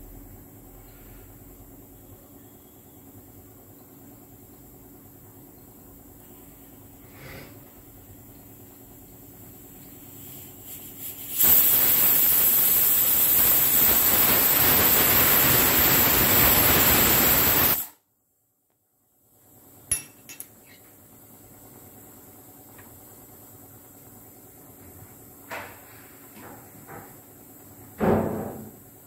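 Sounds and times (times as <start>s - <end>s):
steam venting hiss: 6.2s - 7.8s, 9.2s - 18.0s
pressure cooker puffs: 10.0s - 18.0s.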